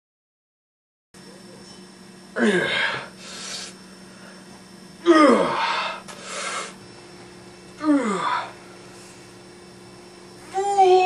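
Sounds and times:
man grunting with exertion: 2.3s - 3.2s, 5.0s - 6.0s, 7.8s - 8.6s
quick breath: 5.7s - 6.8s.

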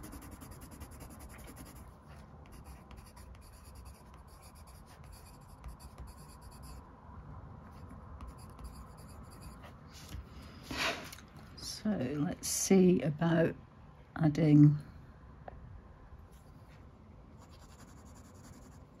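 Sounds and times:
pencil scratching on paper: 0.0s - 6.8s, 7.8s - 10.2s, 17.4s - 19.0s.

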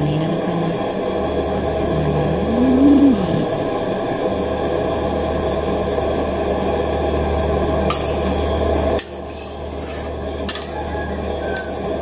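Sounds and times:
low hum: 0.0s - 7.9s.

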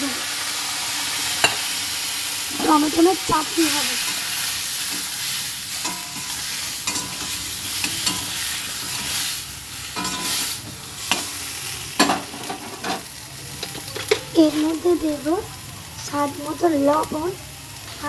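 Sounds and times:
tomatoes sizzling in hot oil: 0.0s - 18.0s
utensil scraping a pan: 10.0s - 11.4s.

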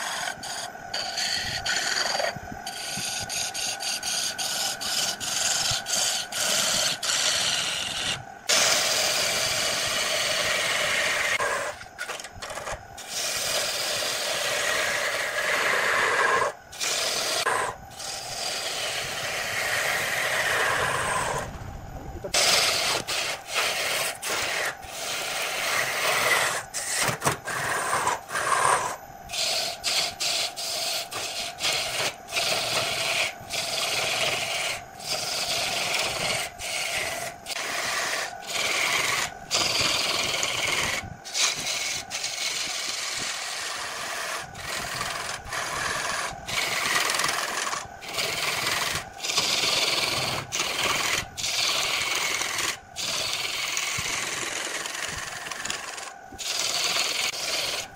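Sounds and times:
lathe tool scraping wood: 0.0s - 21.5s, 22.2s - 57.9s.

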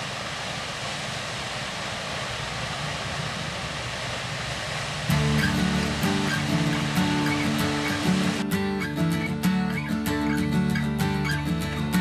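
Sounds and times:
waterfall rushing: 0.0s - 12.0s
music: 5.1s - 12.0s.

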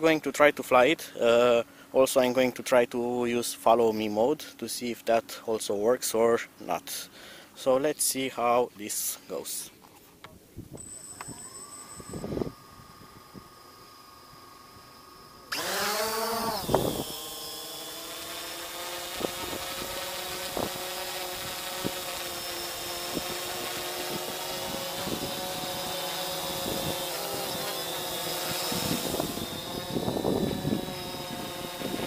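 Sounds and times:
drone motors buzzing: 10.6s - 32.0s.

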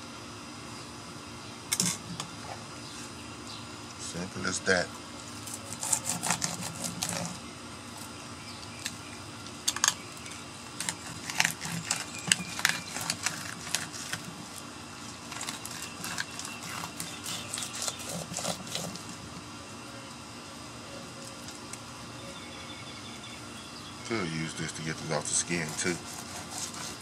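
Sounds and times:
knife scraping through fish scales: 5.4s - 7.4s, 10.8s - 14.3s, 15.3s - 19.0s, 25.4s - 27.0s.

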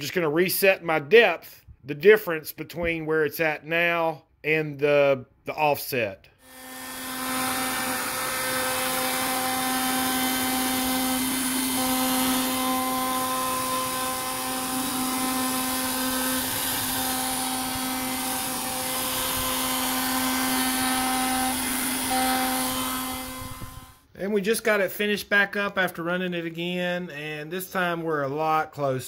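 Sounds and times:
bit cutting into wood: 6.4s - 24.0s
router spindle whine: 6.4s - 24.0s.

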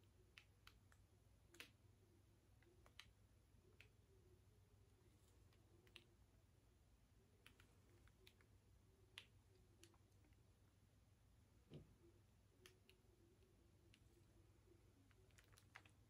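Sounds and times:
faint clicks: 15.0s - 16.0s.

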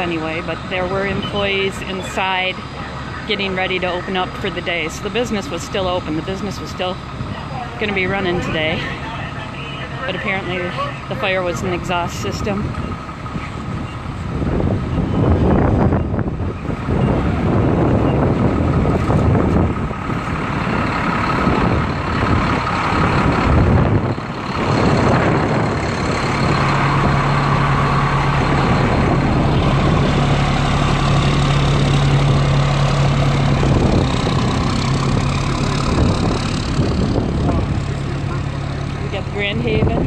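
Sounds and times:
fire truck engine idling: 0.0s - 40.0s
wind on microphone: 11.6s - 38.0s, 39.1s - 40.0s.

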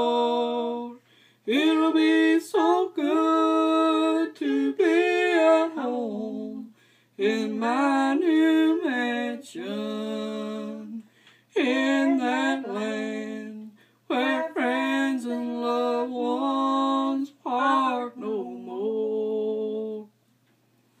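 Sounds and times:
person singing gospel: 0.0s - 20.1s
breaths: 1.0s - 1.5s, 6.7s - 7.2s, 11.0s - 11.6s, 13.7s - 14.1s.

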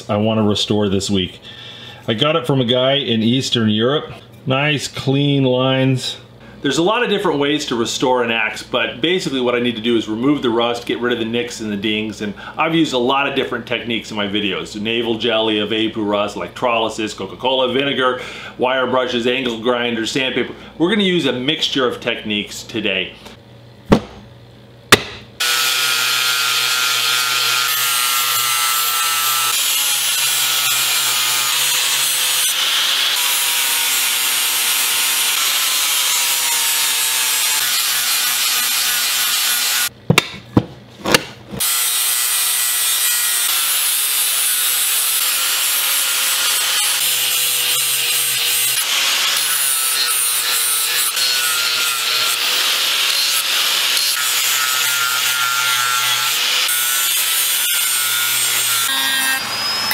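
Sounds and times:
sharp knocks: 23.9s - 24.2s, 24.9s - 25.3s
angle grinder grinding metal: 25.4s - 39.9s, 41.6s - 59.9s.

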